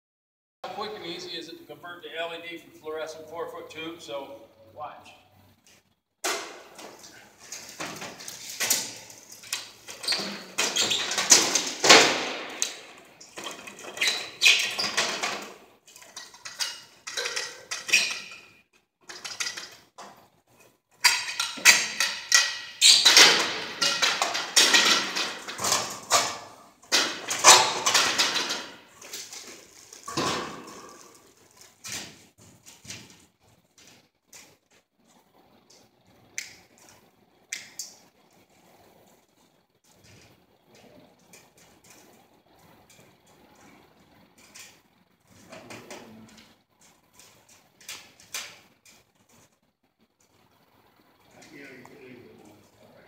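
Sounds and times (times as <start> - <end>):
metal and plastic parts clattering: 6.2 - 19.9, 21.0 - 32.1.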